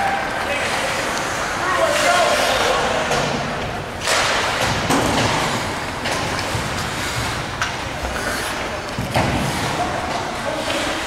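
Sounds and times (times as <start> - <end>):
rink and crowd noise: 0.0 - 11.0
hockey stick hitting puck: 3.1 - 11.0.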